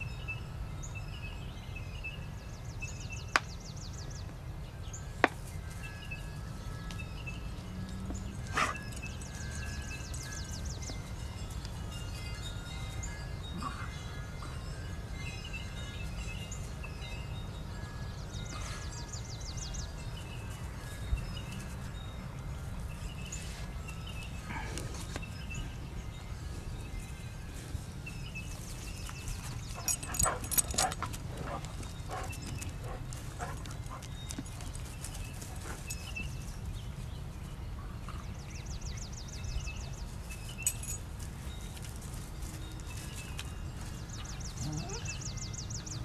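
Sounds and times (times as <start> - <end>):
dog collar tag jingling: 8.2 - 13.9, 28.6 - 36.3, 40.4 - 41.8.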